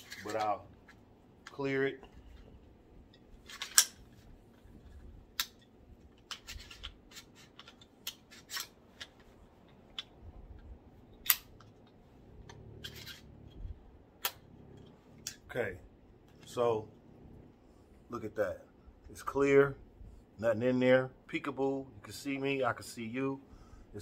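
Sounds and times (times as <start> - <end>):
pistol action clicking: 3.5 - 4.0, 5.4 - 13.2, 14.2 - 15.4.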